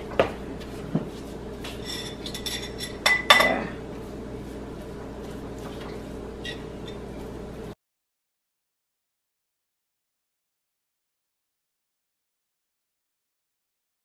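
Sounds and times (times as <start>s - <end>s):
brush clinking against ceramic bowl: 1.8s - 3.6s.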